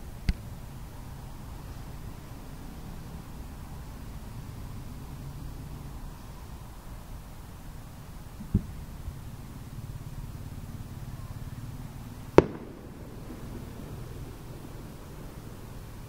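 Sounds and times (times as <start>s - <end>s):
distant fireworks thump: 8.4s - 8.8s, 12.3s - 15.5s.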